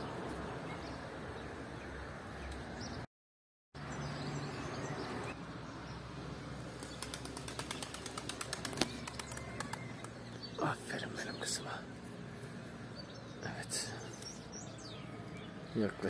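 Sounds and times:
small birds chirping: 0:03.8 - 0:16.0.

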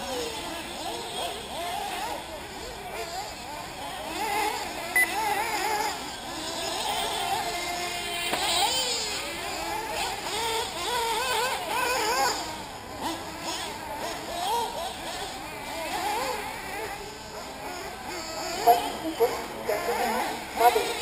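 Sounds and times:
rc car engines whining: 0:00.0 - 0:21.0.

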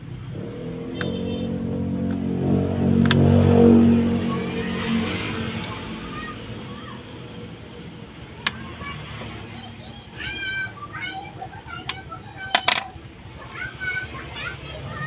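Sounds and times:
vehicle engine passing by: 0:00.0 - 0:09.9.

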